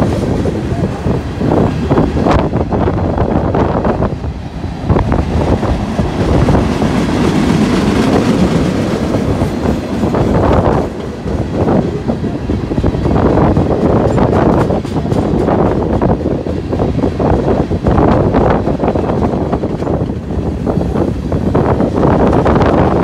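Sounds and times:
freight train rumbling past: 0.0s - 23.0s
train wheels clicking over rail joints: 5.0s - 23.0s.

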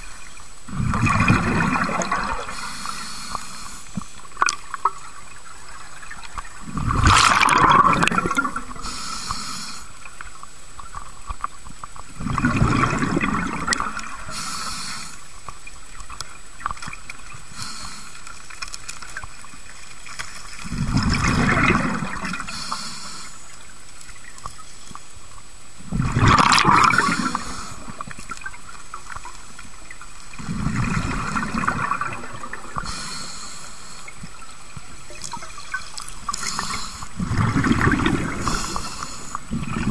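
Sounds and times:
bubbling exhalations underwater: 0.7s - 2.5s, 6.6s - 8.8s, 12.2s - 14.3s, 20.6s - 22.5s, 25.9s - 28.0s, 30.3s - 32.9s, 35.3s - 38.8s, 39.4s - 39.9s
regulator hiss: 2.4s - 4.2s, 8.6s - 10.4s, 14.0s - 15.5s, 17.4s - 18.6s, 22.4s - 23.9s, 26.9s - 30.3s, 32.6s - 34.6s, 35.8s - 39.8s.

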